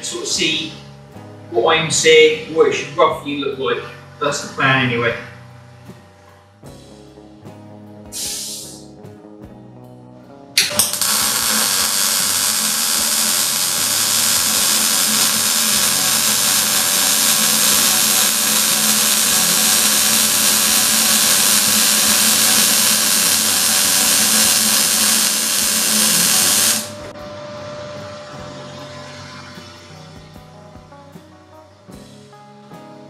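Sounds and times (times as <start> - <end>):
welding arc crackling: 8.2 - 8.8, 10.6 - 27.1
welding arc pops: 8.2 - 8.8, 10.6 - 27.1.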